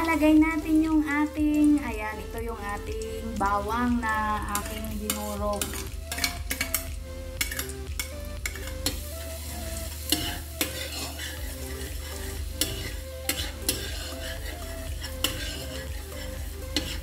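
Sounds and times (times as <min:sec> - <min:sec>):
garlic sizzling in a wok: 0:00.0 - 0:17.0
spatula scraping a pan: 0:04.6 - 0:17.0.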